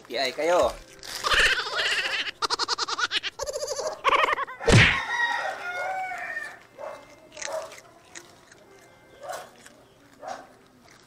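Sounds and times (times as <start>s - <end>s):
hens clucking: 1.1s - 8.6s
rooster crowing: 3.6s - 6.8s.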